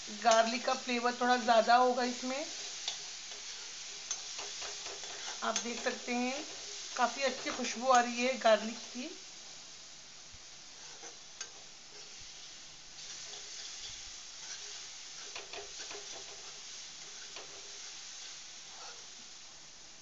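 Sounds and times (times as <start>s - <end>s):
garlic sizzling in hot oil: 0.0s - 20.0s
metal spoon scraping a pan: 2.1s - 8.2s, 10.8s - 19.1s.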